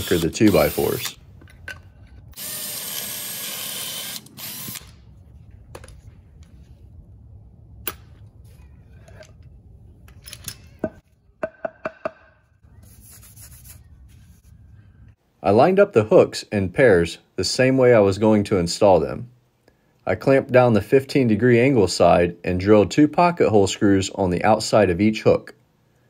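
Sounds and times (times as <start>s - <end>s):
cordless drill boring wood: 0.0s - 1.1s, 2.4s - 4.8s.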